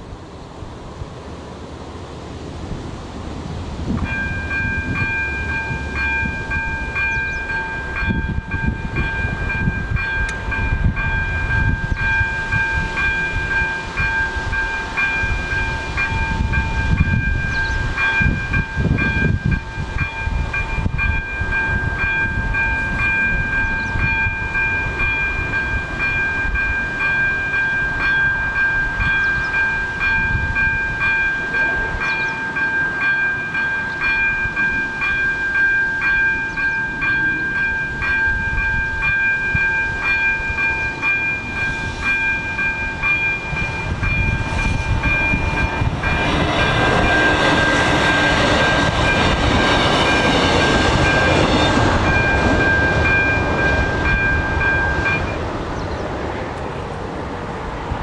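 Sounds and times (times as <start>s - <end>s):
level crossing bell ringing: 4.0s - 55.5s
low rumble: 37.5s - 57.0s.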